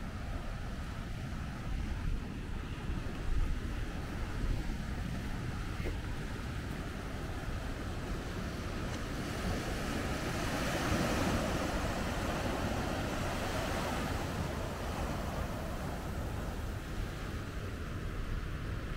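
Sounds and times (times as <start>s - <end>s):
small waves washing up beach: 0.0s - 18.9s
wind rumble on microphone: 0.0s - 18.9s.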